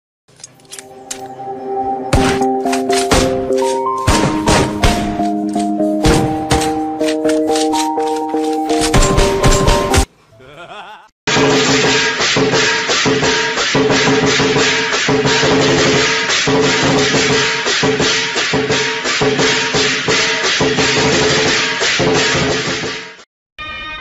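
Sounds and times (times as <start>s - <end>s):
music with quick percussion beat: 2.2s - 8.0s, 8.7s - 10.1s, 11.3s - 22.8s.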